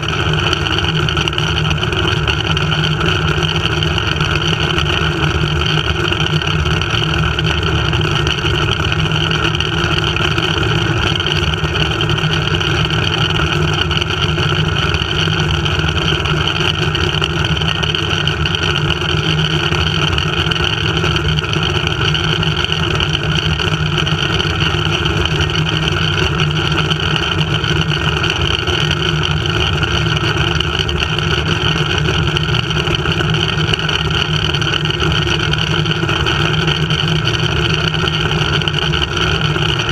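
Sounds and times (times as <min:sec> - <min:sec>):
zipline trolley rushing along cable: 0:00.0 - 0:39.9.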